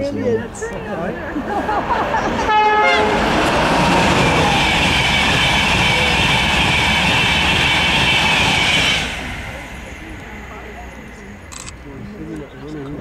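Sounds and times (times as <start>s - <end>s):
train wheels rushing on rails: 1.4s - 11.5s.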